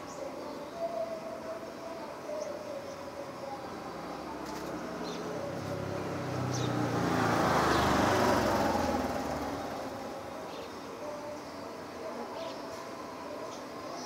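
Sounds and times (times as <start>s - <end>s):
vehicle driving past: 4.0s - 10.4s.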